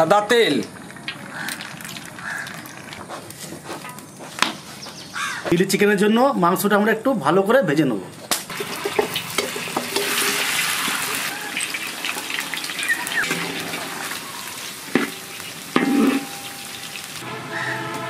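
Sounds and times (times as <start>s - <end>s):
chicken deep-frying in oil: 0.0s - 3.6s, 8.5s - 17.2s.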